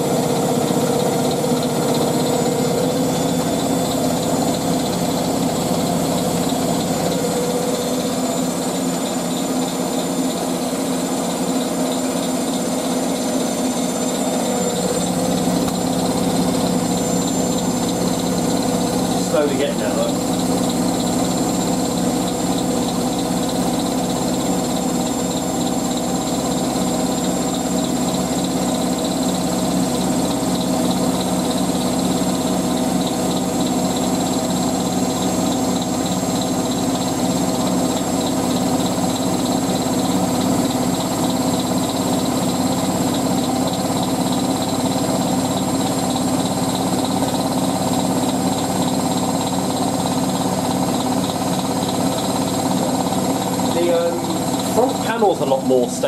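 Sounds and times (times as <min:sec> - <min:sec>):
washing machine spinning: 0:00.0 - 0:56.0.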